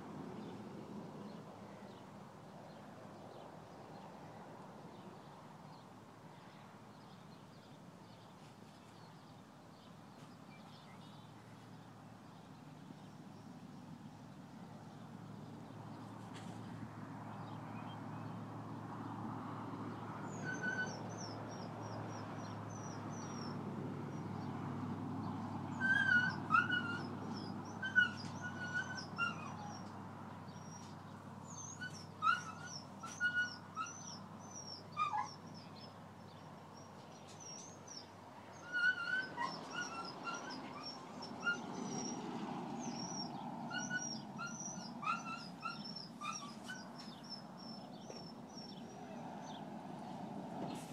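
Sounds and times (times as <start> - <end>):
low outdoor background noise: 0.0 - 50.9
dog whining: 20.3 - 21.3, 25.7 - 29.9, 31.5 - 35.6, 38.6 - 42.2, 42.8 - 47.4.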